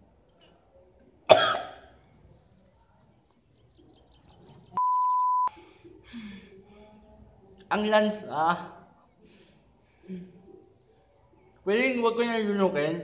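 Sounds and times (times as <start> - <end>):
man coughing hard: 1.3 - 1.7
electronic censor bleep: 4.8 - 5.5.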